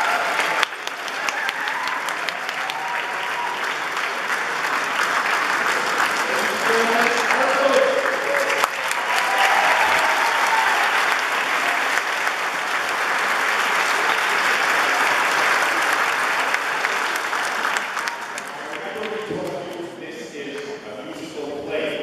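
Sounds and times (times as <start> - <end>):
applause in a hall: 0.0 - 20.8.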